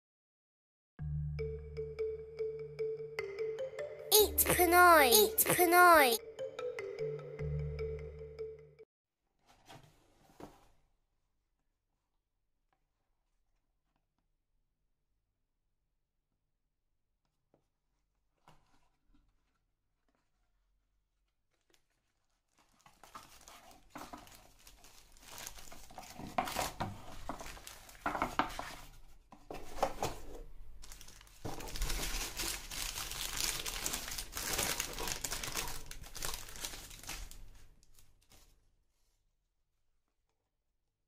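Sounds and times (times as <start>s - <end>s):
paper wrapper crinkling: 21.5s - 28.3s, 30.8s - 38.6s.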